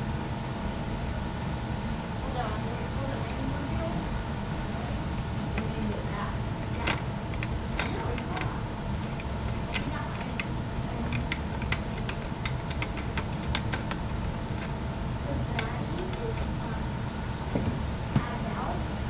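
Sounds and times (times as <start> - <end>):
steady low hum: 0.0 - 19.0
tools clinking on metal parts: 3.2 - 3.6, 4.9 - 5.9, 6.6 - 14.8, 15.5 - 16.6.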